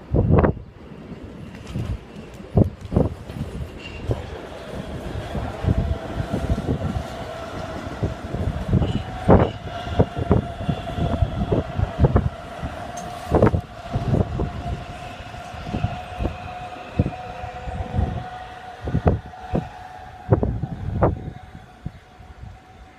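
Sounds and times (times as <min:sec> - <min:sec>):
electric train high whine: 0:00.0 - 0:22.9
train wheels clunking over joints: 0:01.3 - 0:17.5.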